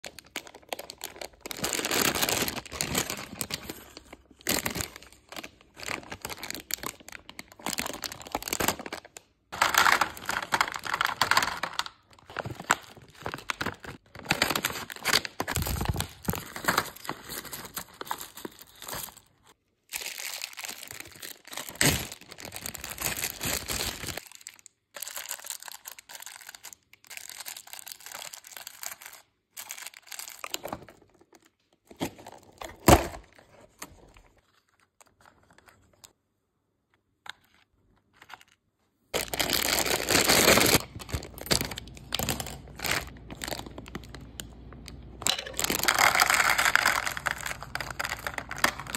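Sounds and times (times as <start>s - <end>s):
plastic wrappers crinkling: 0.0s - 31.4s, 37.4s - 48.9s
packs set into plastic bins: 9.6s - 19.3s.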